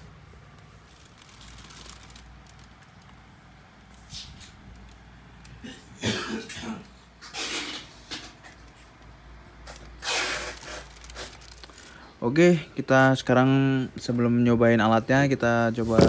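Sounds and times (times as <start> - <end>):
person coughing: 5.6 - 6.9.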